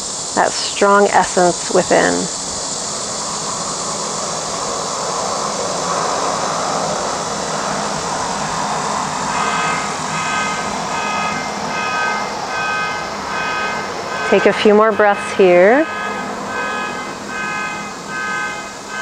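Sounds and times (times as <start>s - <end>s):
outdoor rushing noise: 1.9s - 19.0s
high beeping pattern: 9.4s - 19.0s.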